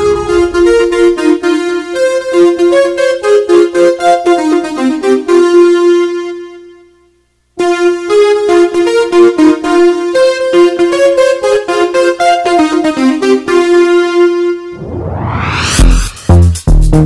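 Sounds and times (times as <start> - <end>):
keyboard piano-like melody: 7.6 - 14.8.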